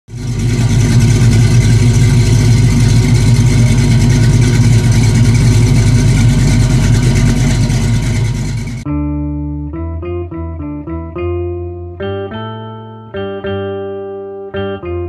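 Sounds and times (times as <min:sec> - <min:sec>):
car engine idling: 0:00.1 - 0:08.9.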